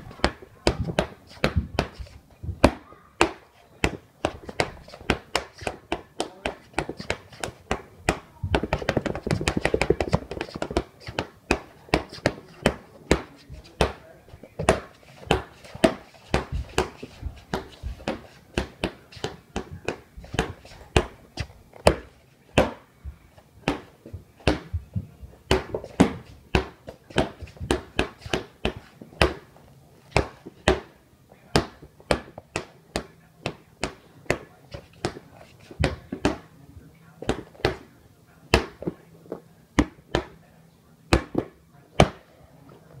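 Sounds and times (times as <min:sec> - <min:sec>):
ball bouncing on wooden floor: 0:00.0 - 0:14.0, 0:14.6 - 0:29.5, 0:35.8 - 0:36.5, 0:37.2 - 0:37.9, 0:41.1 - 0:42.2.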